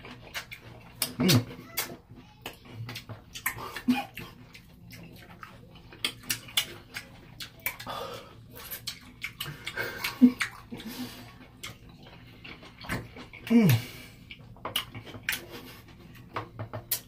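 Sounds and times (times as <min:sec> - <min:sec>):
wet squelches of peppers: 0:00.0 - 0:16.3
person humming: 0:13.5 - 0:13.9.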